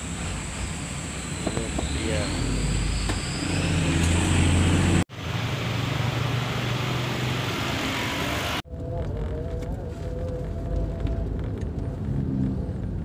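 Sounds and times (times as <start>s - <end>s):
road traffic hiss and rumble: 0.0s - 13.0s
vehicle running along road: 0.0s - 13.0s.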